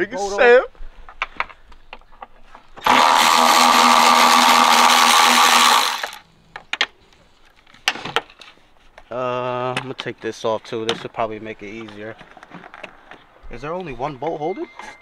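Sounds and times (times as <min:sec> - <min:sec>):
cordless ratchet running: 0:02.8 - 0:06.2.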